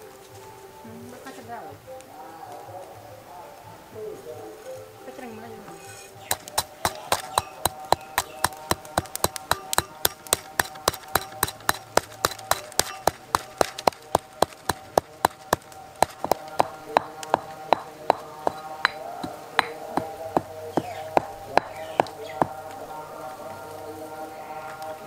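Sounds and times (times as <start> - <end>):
stone pestle pounding in mortar: 6.2 - 22.7.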